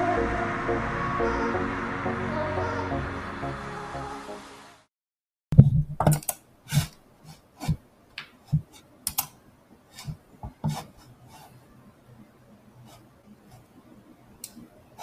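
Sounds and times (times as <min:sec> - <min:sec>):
background music: 0:00.0 - 0:04.9.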